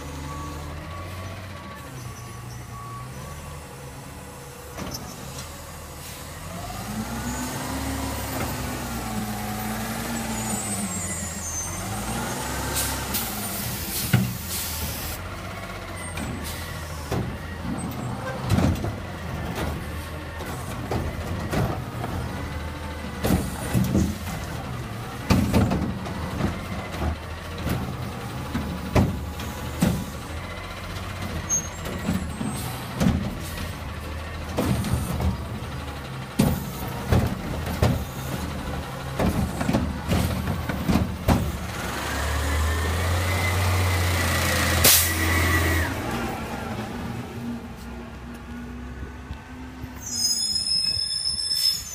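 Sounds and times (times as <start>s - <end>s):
diesel engine revving: 0.0s - 50.4s
air brake hiss: 12.8s - 15.2s, 44.8s - 45.2s.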